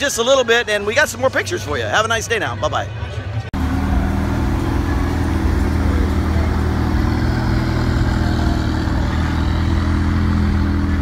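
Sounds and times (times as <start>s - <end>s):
car engine idling: 3.6s - 11.0s.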